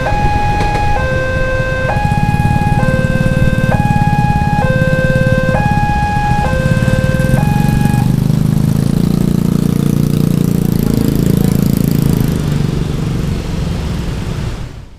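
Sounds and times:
electronic warning tone: 0.0 - 8.3
scooters and motorcycles accelerating: 0.0 - 14.8.

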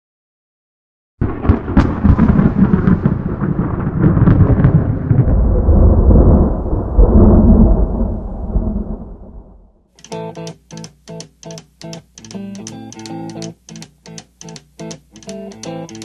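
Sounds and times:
thunder clap and rumble: 1.2 - 9.8.

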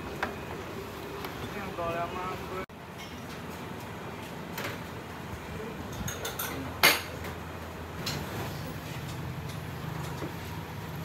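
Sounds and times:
steady background noise: 0.0 - 11.0
dishes and utensils clinking: 5.9 - 7.4.

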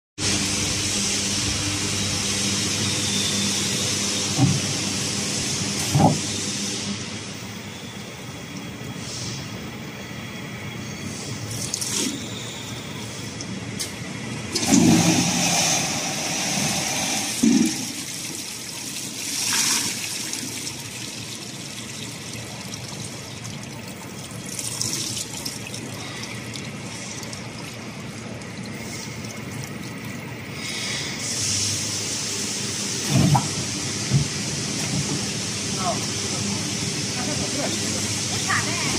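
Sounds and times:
water spraying into jerrycans: 11.3 - 38.9.

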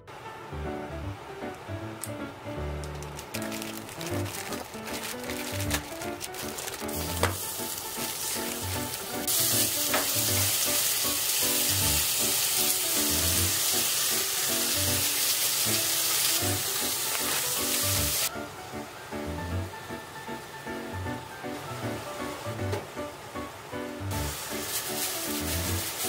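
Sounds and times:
background music: 0.0 - 26.0
meat and onions sizzling: 2.6 - 18.3, 23.6 - 26.0.

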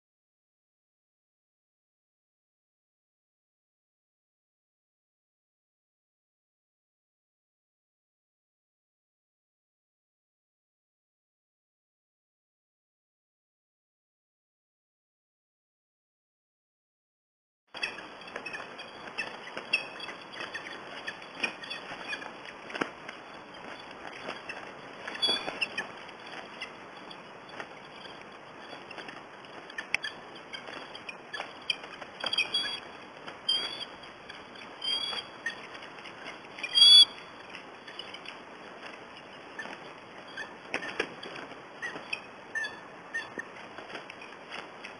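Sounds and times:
wings beating in dry brush: 17.8 - 42.2
eagle high-pitched calls: 24.5 - 25.9, 29.7 - 32.9, 33.5 - 35.7, 36.6 - 37.3.

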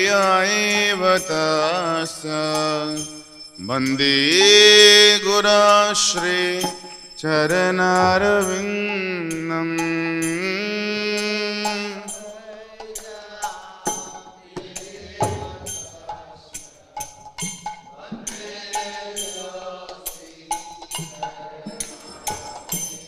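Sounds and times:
hand cymbals struck: 0.0 - 23.0
sustained melodic tones: 0.1 - 13.1
drum: 8.0 - 8.8, 14.6 - 16.2.

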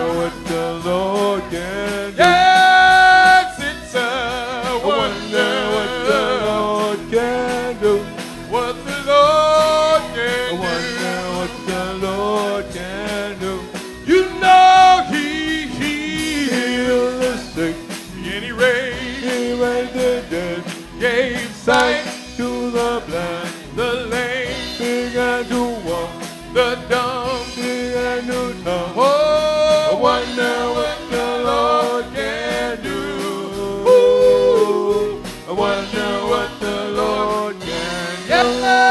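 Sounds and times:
gospel singing: 0.0 - 38.9
steady drum beat: 0.0 - 38.9.

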